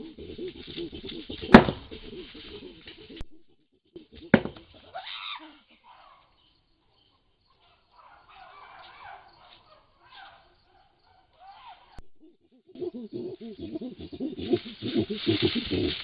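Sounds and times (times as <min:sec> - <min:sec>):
chimpanzee hooting: 0:00.0 - 0:06.4, 0:07.6 - 0:16.0
loud bang on tree: 0:01.5 - 0:01.9.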